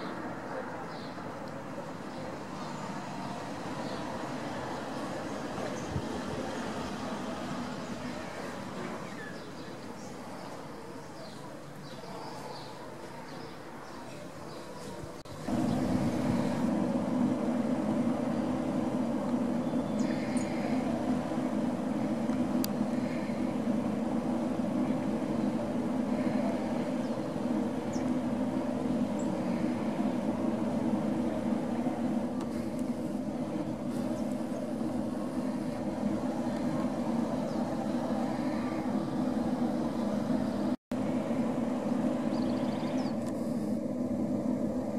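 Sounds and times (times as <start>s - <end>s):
industrial exhaust drone: 0.0s - 44.9s.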